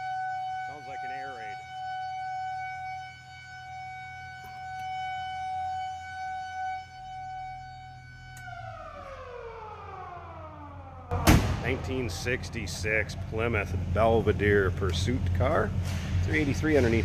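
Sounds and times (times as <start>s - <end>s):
police siren wailing: 0.0s - 13.3s.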